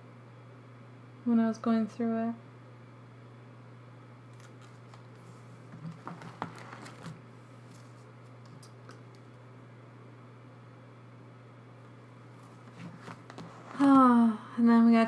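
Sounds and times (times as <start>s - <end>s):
plastic sleeves crinkling: 4.3s - 8.1s.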